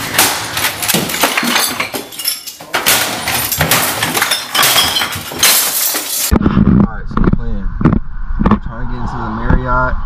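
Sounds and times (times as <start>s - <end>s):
glass bottles clinking: 0.0s - 6.3s.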